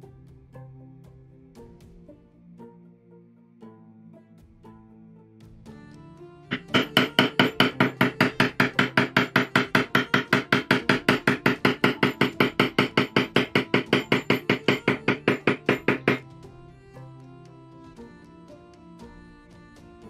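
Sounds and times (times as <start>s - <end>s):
maul tapping metal stamp: 6.5s - 16.2s.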